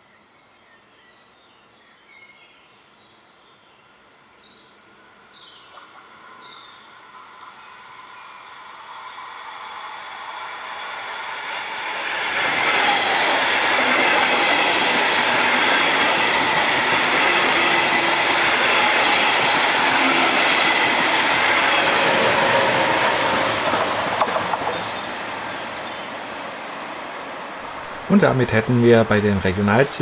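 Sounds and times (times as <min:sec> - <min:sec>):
train wheels rushing on rails: 0:07.0 - 0:30.0.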